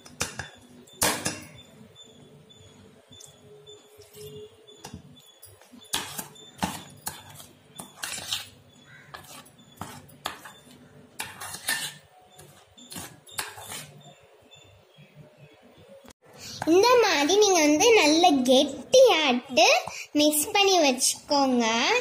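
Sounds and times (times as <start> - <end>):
metal spoon scraping a bowl: 3.1 - 14.2.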